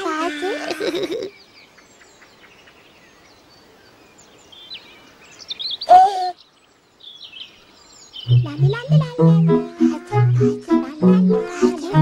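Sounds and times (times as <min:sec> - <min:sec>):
birds chirping and singing: 0:01.2 - 0:11.9
baby vocal sound: 0:08.7 - 0:12.0.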